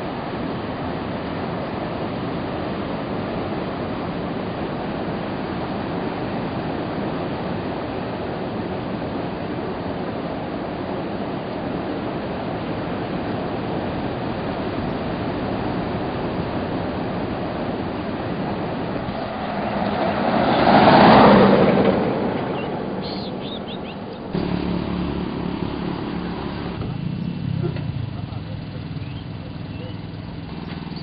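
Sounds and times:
steady rushing noise: 0.0s - 27.4s
pickup truck driving past: 19.0s - 31.0s
low steady hum: 24.0s - 31.0s.

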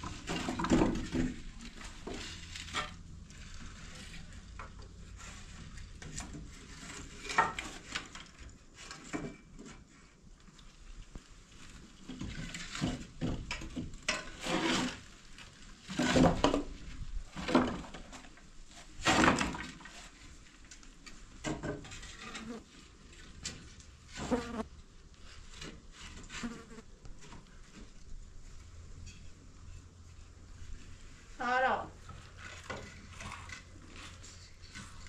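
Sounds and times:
fly buzzing: 24.2s - 24.7s.

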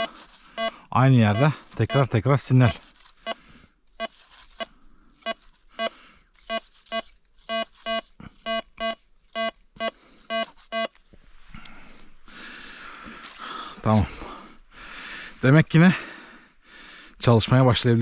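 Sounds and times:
metal detector beeping: 0.0s - 11.0s.

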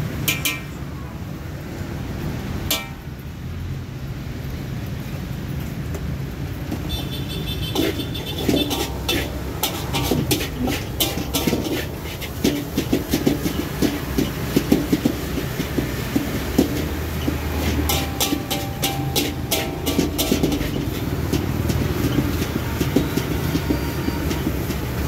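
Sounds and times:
metal spatula scraping a wok: 6.9s - 25.0s.

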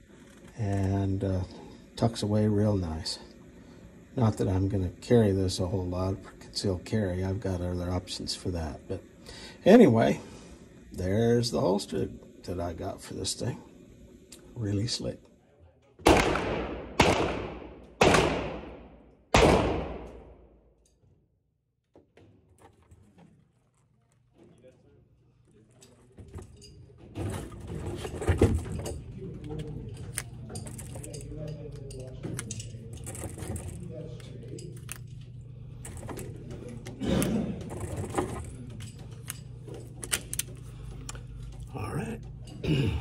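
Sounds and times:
steady low hum: 0.0s - 21.0s, 22.8s - 43.0s
gunshots echoing indoors: 16.0s - 20.7s.

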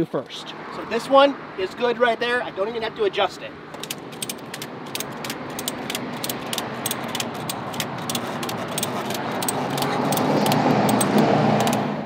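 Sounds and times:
passing vehicle: 0.3s - 12.0s
ratchet strap clicking: 3.8s - 11.9s.

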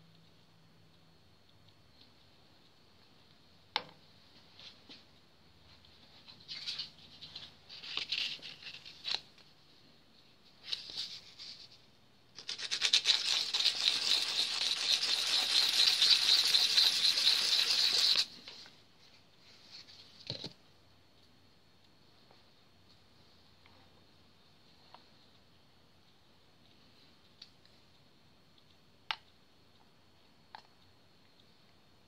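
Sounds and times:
pencil lead scrubbing on card: 12.4s - 18.3s.

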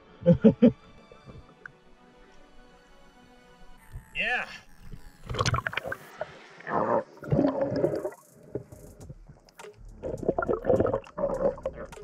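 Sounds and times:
water sloshing and gurgling: 5.2s - 12.0s.

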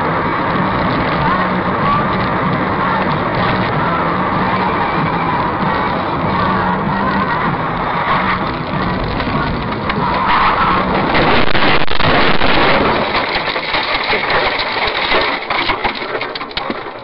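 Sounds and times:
car road and wind noise: 0.0s - 17.0s
knocks and rattles: 0.0s - 17.0s.

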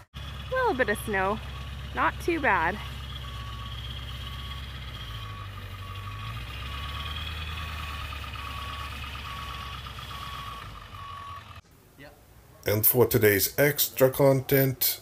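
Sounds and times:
truck engine rumbling: 0.0s - 15.0s
backup alarm beeping: 0.2s - 11.6s.

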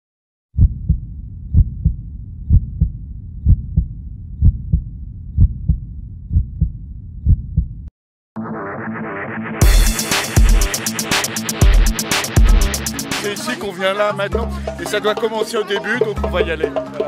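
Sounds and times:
heartbeat thumps: 0.6s - 7.9s, 11.6s - 13.1s
steady low rumble: 0.6s - 7.9s
electronic music: 8.4s - 14.0s.

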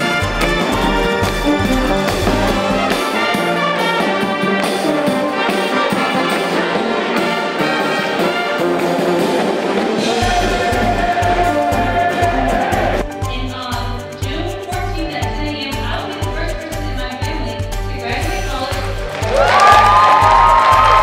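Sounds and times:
brass band music: 0.0s - 13.2s.

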